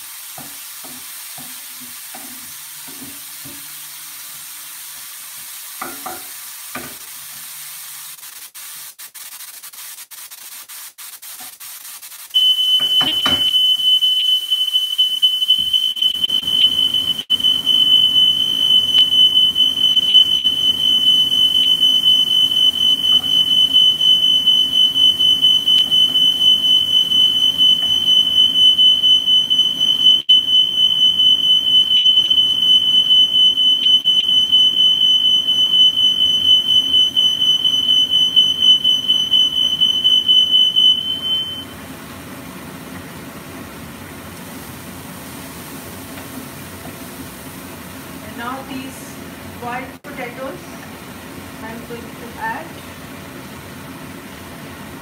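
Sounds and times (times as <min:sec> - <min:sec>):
smoke alarm tone: 0:12.4 - 0:41.7.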